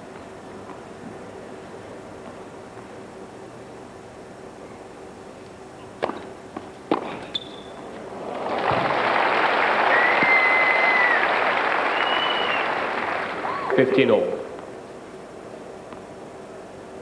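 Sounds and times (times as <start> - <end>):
crowd applause: 8.1 - 14.0
whistle in crowd: 9.8 - 12.8.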